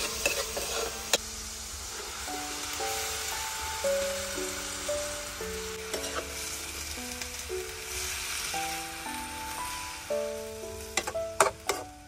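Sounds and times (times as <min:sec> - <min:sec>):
metal spoon stirring in wok: 0:00.0 - 0:01.2, 0:05.9 - 0:06.4
greens sizzling in a wok: 0:00.0 - 0:12.0.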